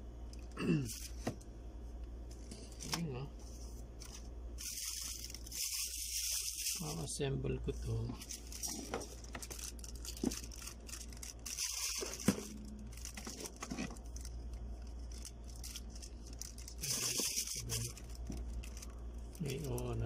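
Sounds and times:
plastic wrapping crinkling: 4.0s - 7.1s, 7.9s - 20.0s.

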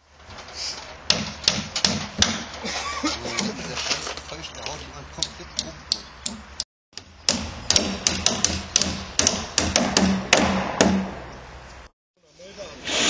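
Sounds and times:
hammers nailing roofing sheets: 1.0s - 2.7s, 7.2s - 11.2s.

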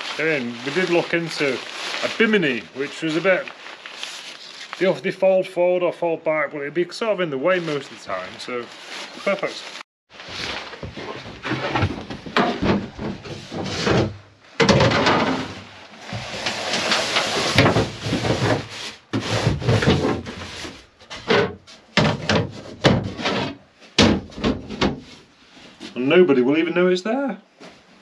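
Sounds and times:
fabric and poles scraping: 0.0s - 5.1s, 7.4s - 14.3s, 15.0s - 21.9s.

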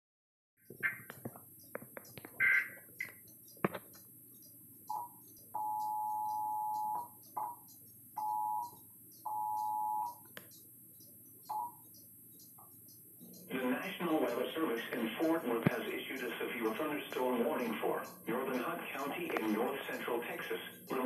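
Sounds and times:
warbling data bursts: 0.7s - 21.0s
two-tone alert signal: 2.4s - 2.8s, 9.3s - 10.2s
sharp clicks: 10.1s - 21.0s.

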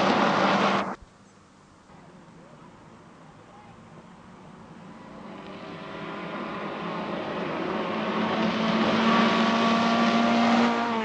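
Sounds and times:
rally car engine at high revs: 4.8s - 11.0s.

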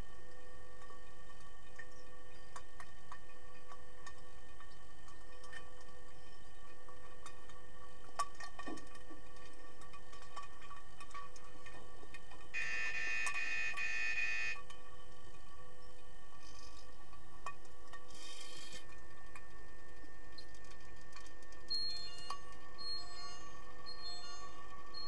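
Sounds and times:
underwater hum of tones: 0.0s - 25.0s
electronic buzzer: 12.6s - 14.6s.

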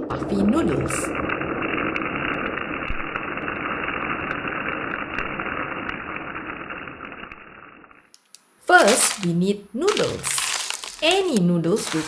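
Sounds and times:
noodles sizzling in hot oil: 10.2s - 12.0s.

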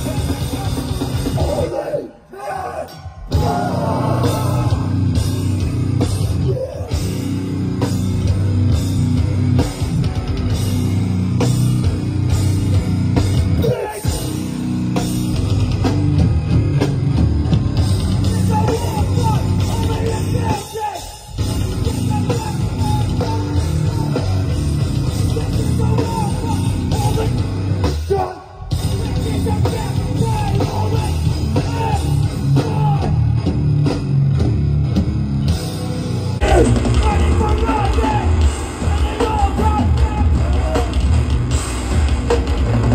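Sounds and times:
drum kit: 0.0s - 1.8s, 2.8s - 42.9s
distorted guitars: 0.0s - 42.9s
shouted vocals: 1.4s - 5.2s, 6.3s - 7.1s, 13.6s - 14.2s, 18.3s - 21.2s, 28.0s - 33.2s, 36.4s - 41.1s.

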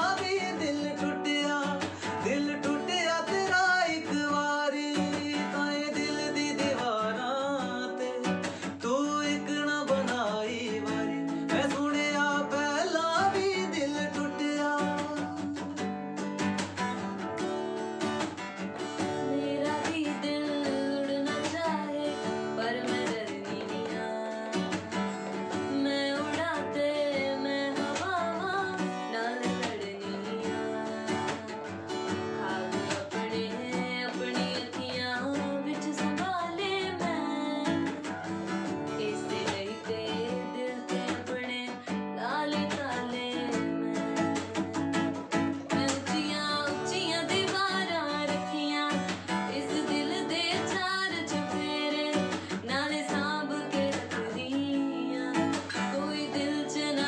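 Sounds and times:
man singing: 0.0s - 15.9s, 19.2s - 31.7s, 32.4s - 38.2s
woman singing: 0.0s - 17.2s, 18.0s - 57.0s
acoustic guitar: 0.0s - 57.0s.

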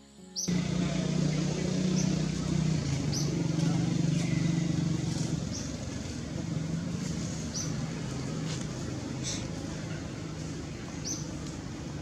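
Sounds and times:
engine humming: 0.4s - 12.0s.

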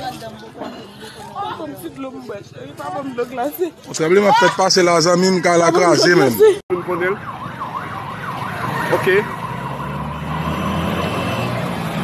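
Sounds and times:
electronic siren sweeping: 7.0s - 11.6s.

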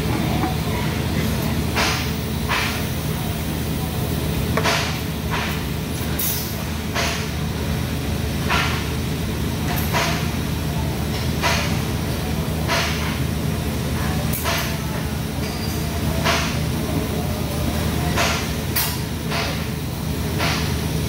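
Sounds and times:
welding hum and hiss: 0.0s - 21.0s.

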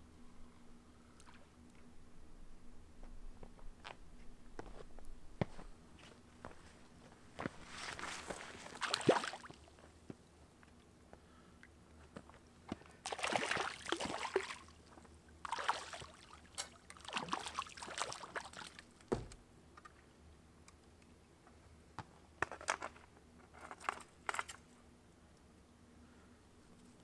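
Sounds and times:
water splashing and sloshing: 7.6s - 9.8s, 13.0s - 19.0s
dull thump: 19.1s - 19.4s.

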